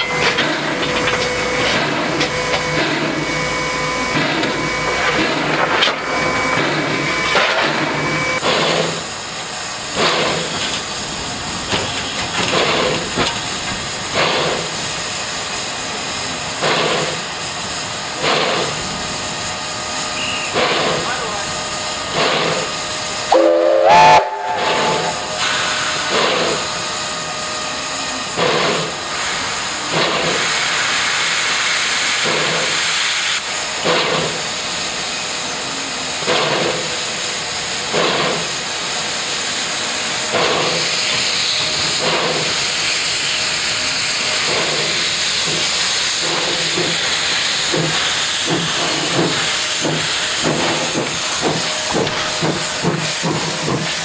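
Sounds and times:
locomotive chuffs: 0:00.0 - 0:54.0
steam locomotive hissing: 0:00.0 - 0:54.0
train whistle toot: 0:20.1 - 0:20.6, 0:23.3 - 0:25.6.

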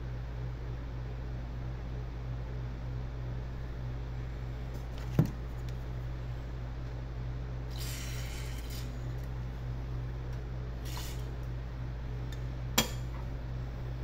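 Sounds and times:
aerosol spray can hissing: 0:07.8 - 0:08.9, 0:10.8 - 0:11.3.

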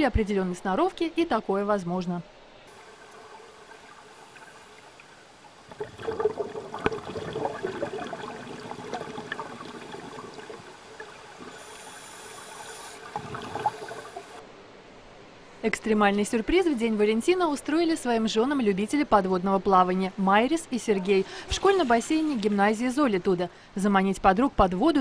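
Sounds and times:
underwater bubbling and gurgling: 0:02.7 - 0:14.4.

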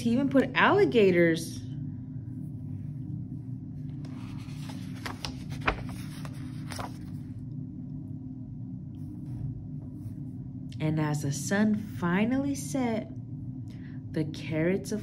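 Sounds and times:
steady low hum: 0:00.0 - 0:15.0
book page turning: 0:03.9 - 0:07.4.

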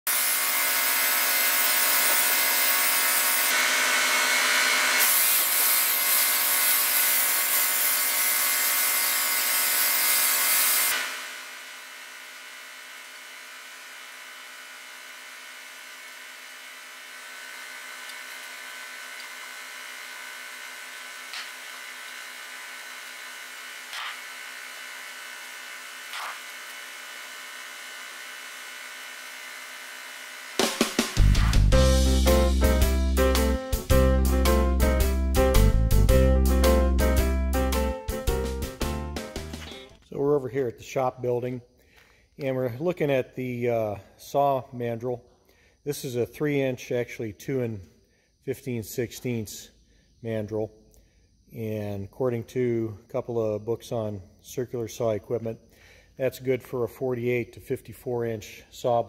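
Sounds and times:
angle grinder grinding metal: 0:00.1 - 0:33.9, 0:39.3 - 0:40.2.

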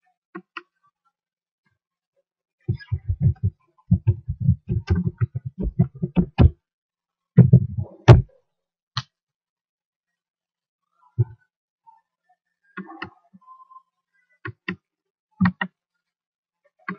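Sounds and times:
typing on computer keyboard: 0:02.8 - 0:06.5.

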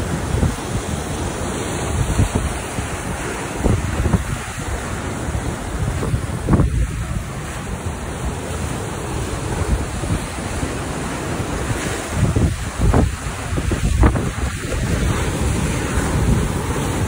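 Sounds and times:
surf breaking on rocks: 0:00.0 - 0:17.0
wind buffeting microphone: 0:00.0 - 0:17.0.

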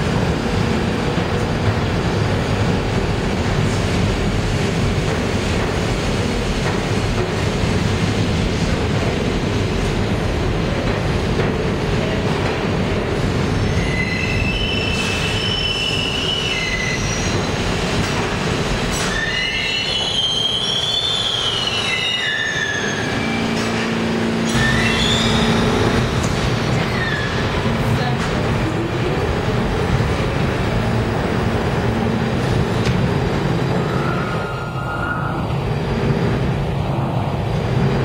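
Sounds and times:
train wheels rumbling on rails: 0:00.0 - 0:38.0
wheels squealing: 0:18.9 - 0:27.6.

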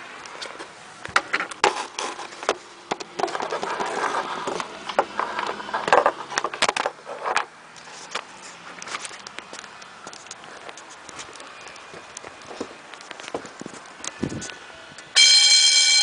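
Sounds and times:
footsteps on wooden deck: 0:08.0 - 0:14.5.

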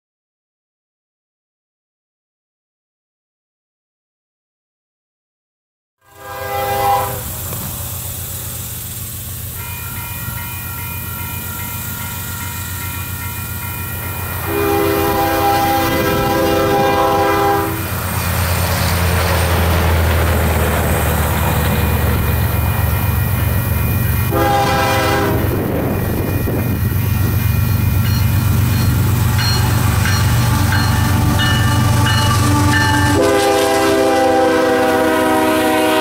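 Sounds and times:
locomotive air horn blasts: 0:06.0 - 0:08.5, 0:14.3 - 0:18.0, 0:24.2 - 0:26.0, 0:29.8 - 0:36.0
diesel locomotive rumble: 0:06.1 - 0:36.0.

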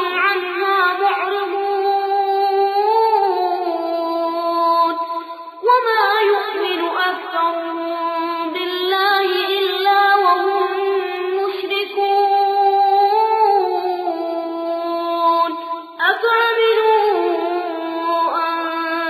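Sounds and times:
person chanting recitation: 0:00.0 - 0:19.0.

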